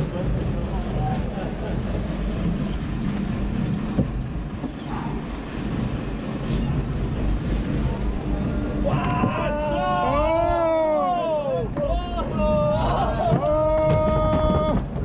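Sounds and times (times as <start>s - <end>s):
boat engine running: 0.0s - 15.0s
wind noise on microphone: 11.7s - 15.0s.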